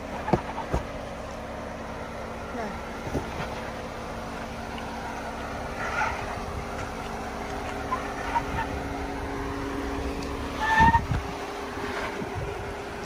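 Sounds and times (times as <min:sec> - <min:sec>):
tyres crunching over rock: 0:00.0 - 0:01.3
engine running at low revs: 0:00.0 - 0:13.0.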